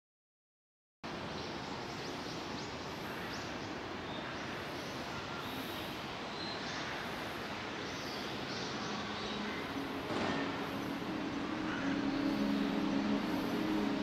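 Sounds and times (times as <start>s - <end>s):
distant traffic hum: 7.0s - 14.0s.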